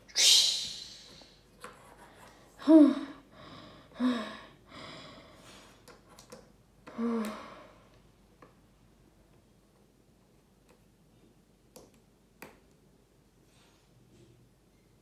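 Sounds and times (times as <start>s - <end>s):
child making breathy vocal sounds: 2.6s - 3.2s.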